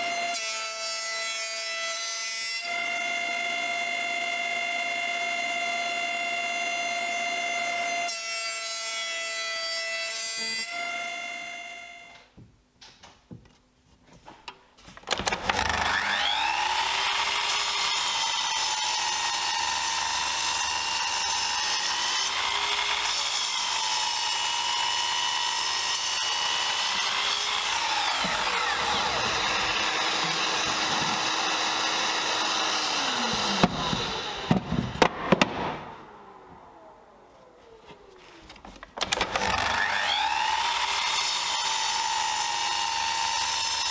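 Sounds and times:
miter saw cutting wood: 2.6s - 12.2s, 15.1s - 43.9s
thickness planer running: 15.1s - 35.1s, 35.8s - 43.9s.

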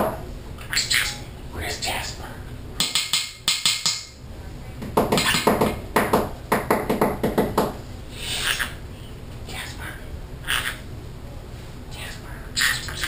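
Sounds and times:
parrot tapping beak on hard surface: 2.8s - 4.1s, 4.8s - 7.7s.

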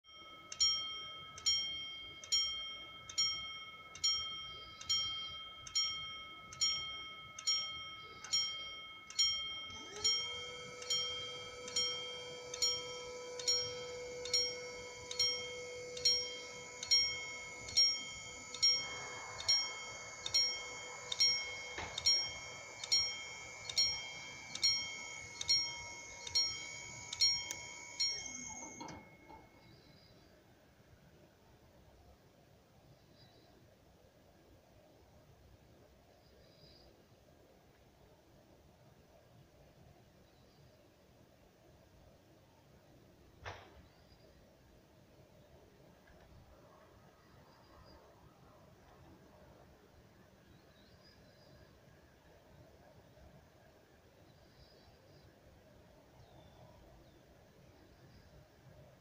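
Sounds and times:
level-crossing warning bell: 0.0s - 29.8s
barrier motor hum: 8.2s - 29.7s.

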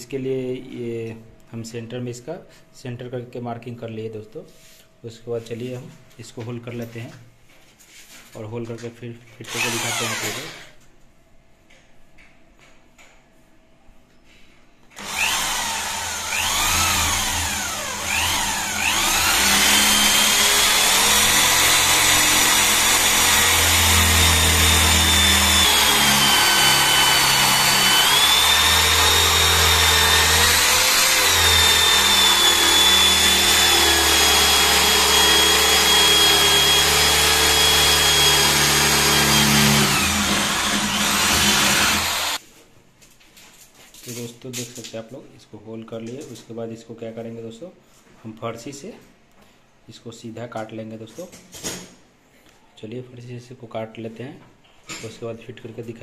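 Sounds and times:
electric drill boring into wood: 9.5s - 10.7s, 15.0s - 42.4s.

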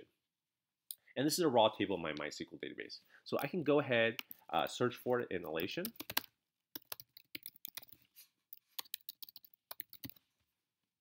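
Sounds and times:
typing on computer keyboard: 5.5s - 10.2s.

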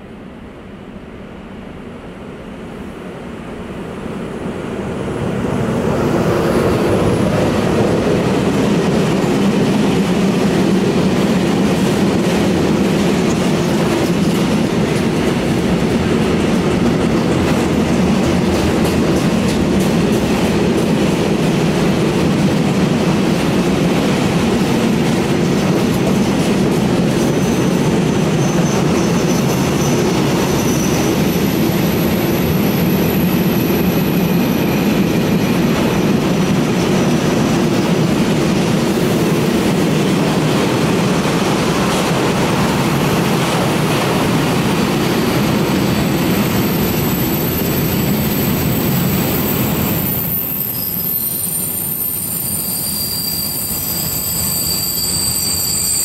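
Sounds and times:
freight train rolling past: 0.0s - 56.0s
faint high wheel squeal: 27.3s - 34.3s, 45.1s - 56.0s.

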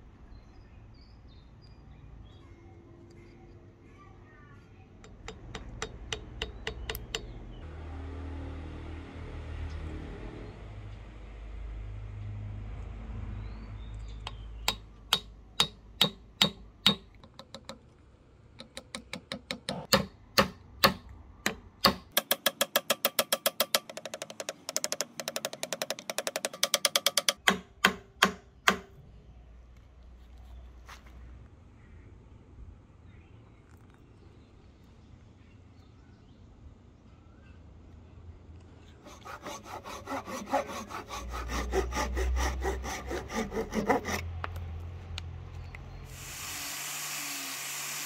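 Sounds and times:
hammer tapping wooden wedge: 5.0s - 7.4s, 14.3s - 17.8s, 18.6s - 28.9s.

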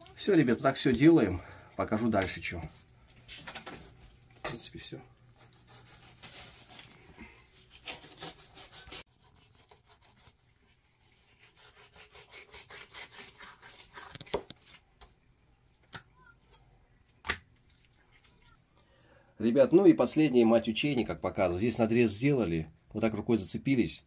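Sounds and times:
knife sawing through fish skin: 5.4s - 6.9s, 7.5s - 14.4s.

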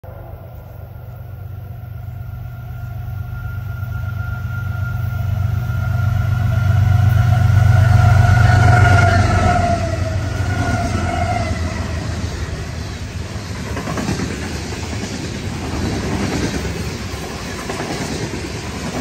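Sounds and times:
thin steady whine: 0.0s - 13.8s
diesel locomotive engine rumble: 0.0s - 19.0s.

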